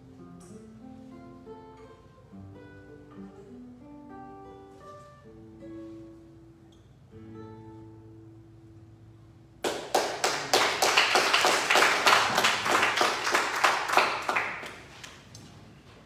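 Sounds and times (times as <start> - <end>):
hand clapping: 9.6 - 15.5.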